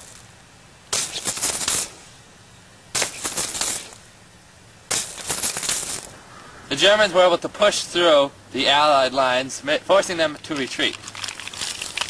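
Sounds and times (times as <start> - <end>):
gunfire bursts: 0.9 - 2.0, 4.9 - 6.1.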